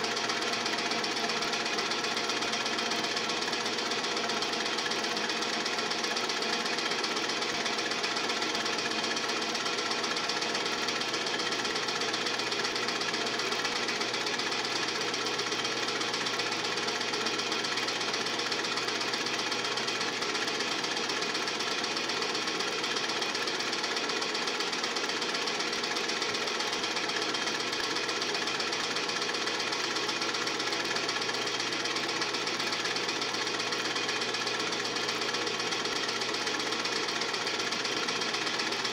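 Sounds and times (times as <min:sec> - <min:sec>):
film projector clattering: 0:00.0 - 0:38.9.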